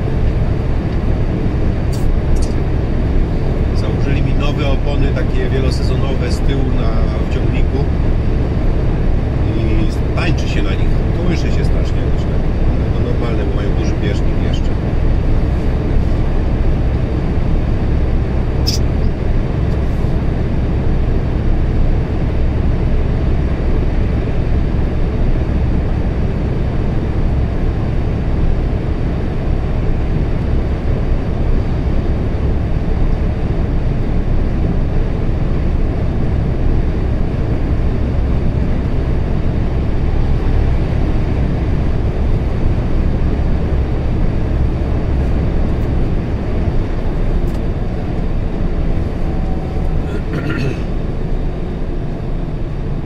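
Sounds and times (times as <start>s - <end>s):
truck engine rumble: 0.0s - 53.0s
short click: 18.7s - 18.9s.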